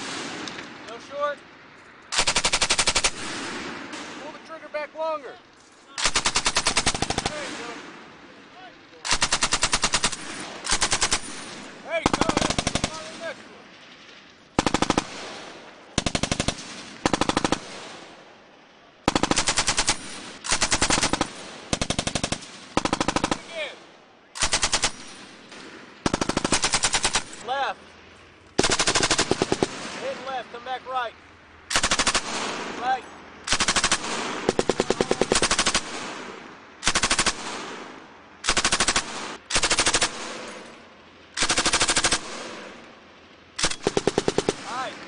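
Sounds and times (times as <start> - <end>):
gunfire echo: 0.0 - 1.3, 2.1 - 4.8, 6.0 - 28.0, 28.6 - 31.0, 31.6 - 45.0
machine gun bursts: 2.1 - 3.3, 6.0 - 7.5, 9.0 - 13.1, 16.0 - 17.7, 19.1 - 23.6, 24.4 - 25.2, 26.0 - 27.4, 28.6 - 29.8, 31.7 - 32.4, 33.5 - 36.0, 36.8 - 37.5, 38.4 - 40.7, 41.4 - 42.6, 43.6 - 44.8.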